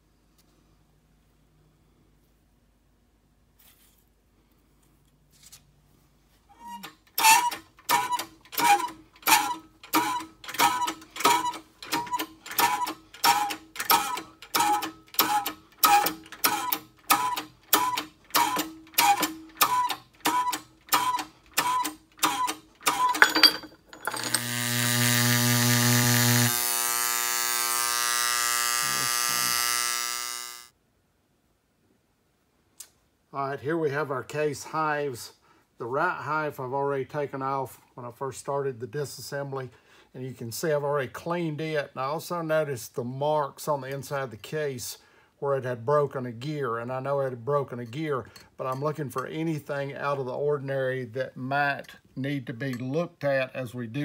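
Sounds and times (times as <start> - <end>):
buzzing with hiss: 24.3 - 30.7.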